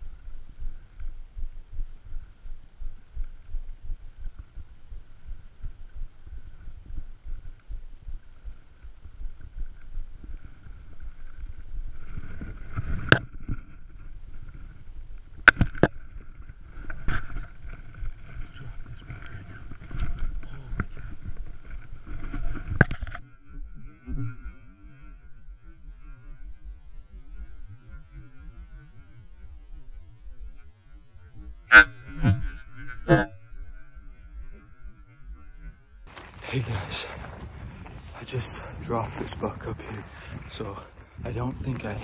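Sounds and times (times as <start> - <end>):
footsteps on rough ground: 0.0 - 23.1, 36.1 - 42.0.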